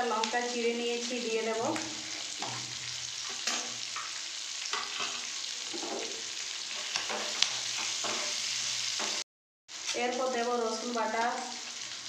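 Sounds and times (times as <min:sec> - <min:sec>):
vegetables sizzling in oil: 0:00.0 - 0:12.0
wooden spatula scraping a pan: 0:01.6 - 0:03.8, 0:04.7 - 0:09.2.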